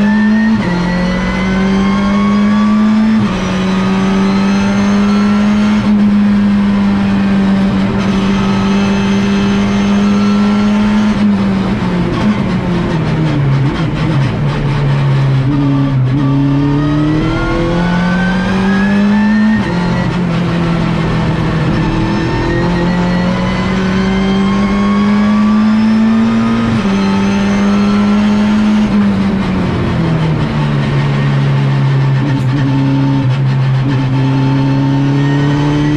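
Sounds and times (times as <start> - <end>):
race car engine revving: 0.0 - 35.9.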